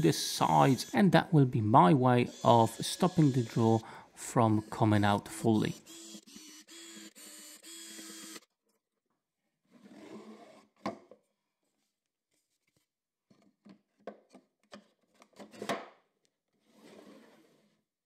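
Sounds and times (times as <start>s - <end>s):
cordless drill running: 0.4s - 0.9s, 5.7s - 8.5s.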